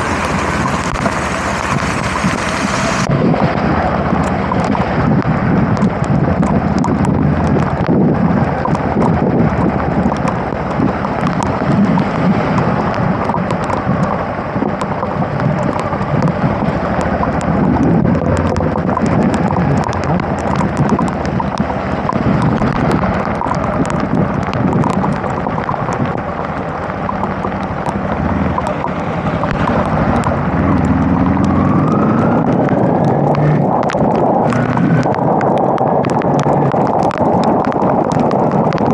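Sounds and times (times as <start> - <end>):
raindrops tapping: 0.0 - 38.9
wind and rain rumble on microphone: 0.0 - 38.9
motorcycle engine revving: 26.2 - 35.1.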